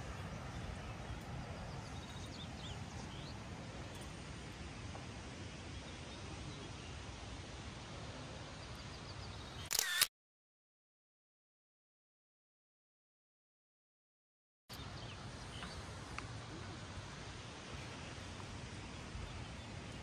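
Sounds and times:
low rumble and hiss: 0.0 - 9.6, 14.8 - 20.0.

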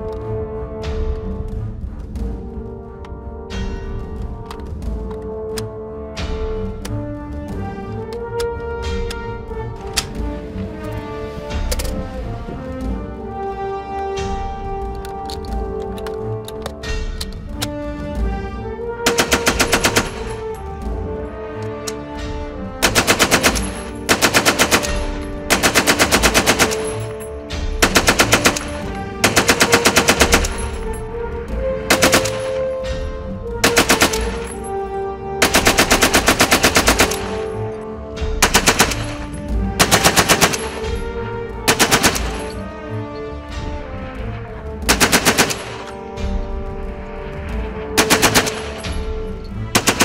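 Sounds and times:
machine gun bursts: 19.1 - 20.5, 22.8 - 27.2, 27.8 - 30.8, 31.9 - 32.6, 35.4 - 37.5, 38.4 - 40.8, 44.9 - 45.9, 48.0 - 48.8, 49.8 - 50.0.

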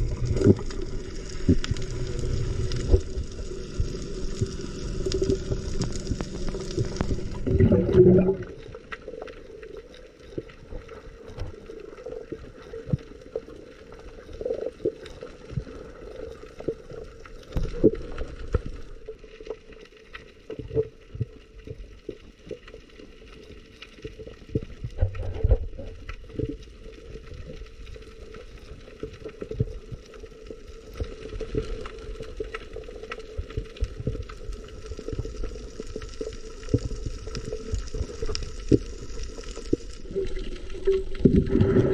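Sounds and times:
low hum: 0.0 - 9.0
water rush: 0.0 - 9.1
gurgling water underwater: 0.0 - 41.9.

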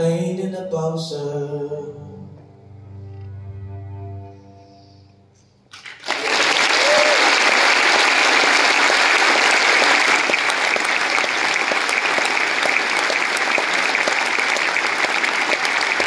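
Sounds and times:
large audience applauding: 5.7 - 16.0.

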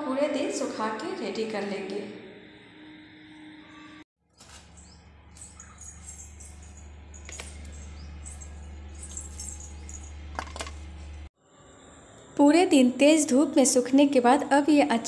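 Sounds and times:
small birds chirping: 4.4 - 10.0.

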